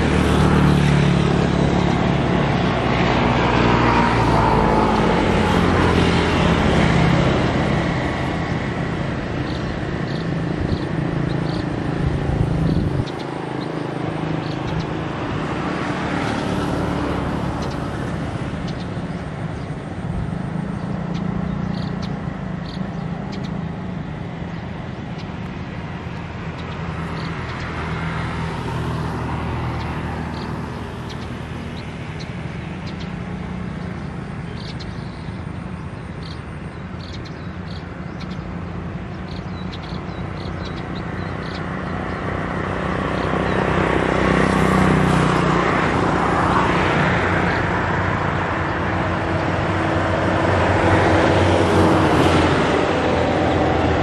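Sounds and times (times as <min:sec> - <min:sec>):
engine hum: 0:00.0 - 0:54.0
vehicles passing: 0:00.0 - 0:54.0.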